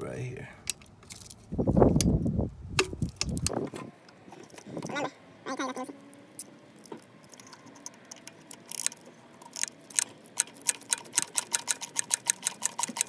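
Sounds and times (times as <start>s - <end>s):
hand ratchet clicking: 7.8s - 13.0s.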